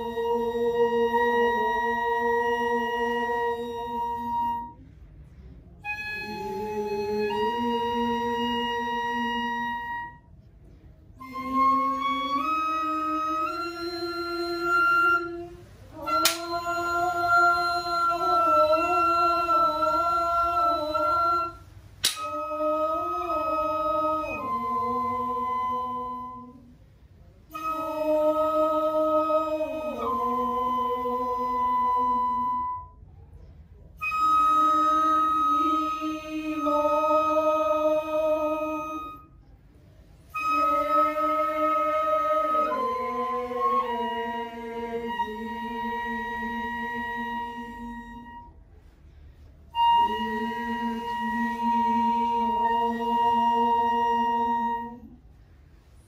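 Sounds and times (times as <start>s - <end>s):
woman singing slow long notes: 0.0s - 4.8s, 5.8s - 10.2s, 11.2s - 26.8s, 27.5s - 33.0s, 34.0s - 39.3s, 40.3s - 48.5s, 49.7s - 55.2s
sharp click: 22.0s - 22.3s.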